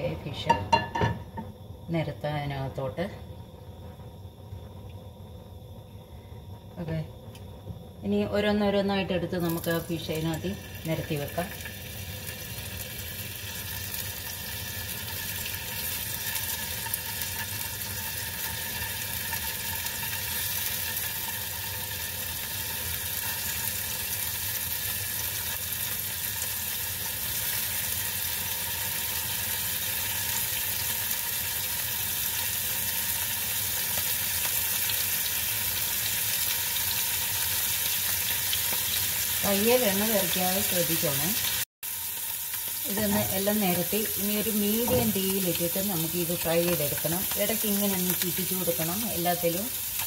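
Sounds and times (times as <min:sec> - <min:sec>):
fish sizzling in hot oil: 0:09.3 - 0:50.0.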